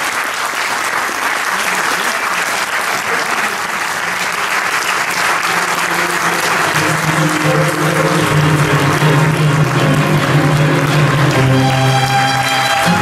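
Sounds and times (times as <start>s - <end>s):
audience applauding: 0.0s - 13.0s
music with long held notes: 5.4s - 13.0s.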